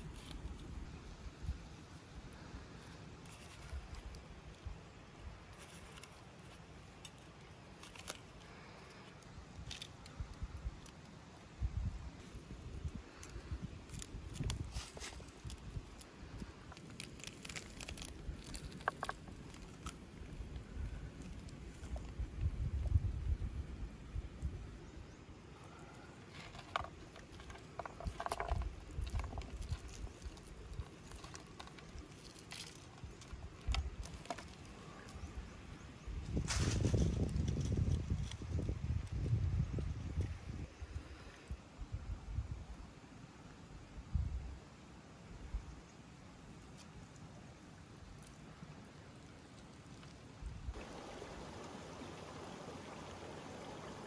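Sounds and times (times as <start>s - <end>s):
wind on microphone: 11.6s - 16.6s, 20.3s - 24.8s, 34.9s - 42.8s, 43.9s - 44.6s
crisp fish skin crackling: 13.8s - 20.6s, 26.5s - 35.2s.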